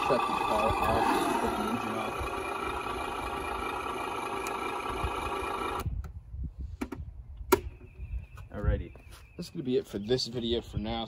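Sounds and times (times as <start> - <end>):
simulated engine idle from speaker: 0.0 - 5.8.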